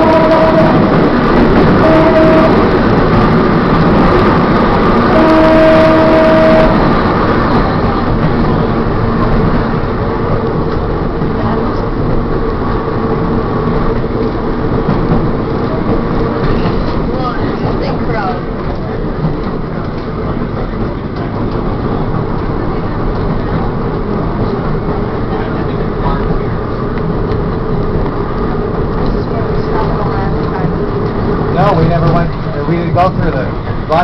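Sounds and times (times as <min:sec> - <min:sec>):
trolley horn blasts: 0:00.0 - 0:03.4, 0:04.3 - 0:07.3
trolley car running on rails: 0:00.0 - 0:34.0.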